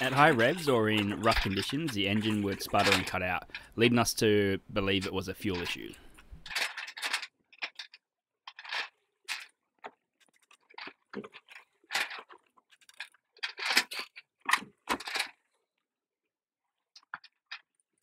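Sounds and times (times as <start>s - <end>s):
knocks and scrapes in a locker: 0.0s - 3.6s.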